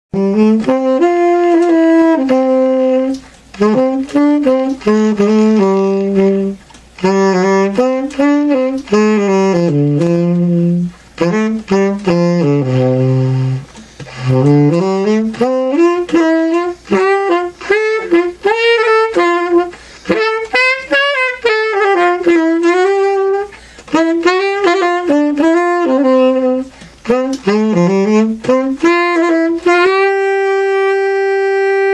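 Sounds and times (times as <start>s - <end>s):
solo saxophone melody: 0.1s - 31.9s
player breathing: 19.8s - 20.1s, 23.6s - 23.9s.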